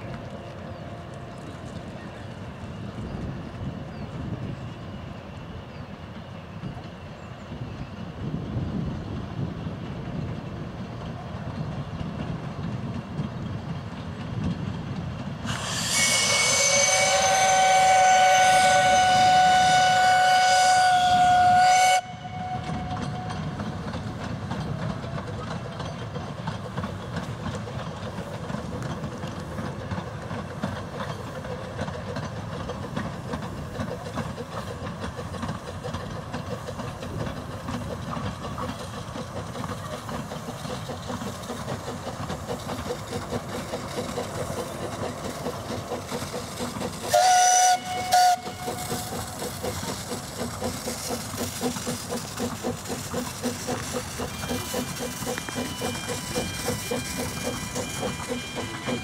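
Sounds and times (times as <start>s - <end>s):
steam locomotive running: 0.0s - 59.0s
steam whistle blast: 15.4s - 23.2s, 47.1s - 49.2s, 54.2s - 59.0s.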